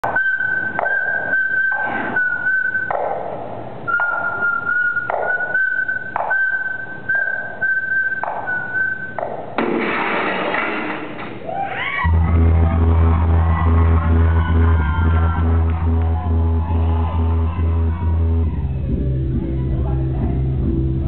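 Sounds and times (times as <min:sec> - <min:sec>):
high whistling tone: 0:00.0 - 0:03.0, 0:03.9 - 0:09.2
crowd noise: 0:11.0 - 0:21.0
audience shouts: 0:11.4 - 0:19.8
crowd cheering: 0:11.4 - 0:20.5.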